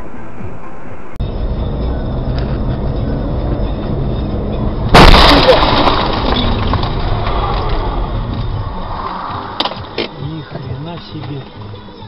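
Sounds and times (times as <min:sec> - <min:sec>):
car road and engine noise: 0:00.0 - 0:12.0
car collision crash: 0:04.9 - 0:08.9.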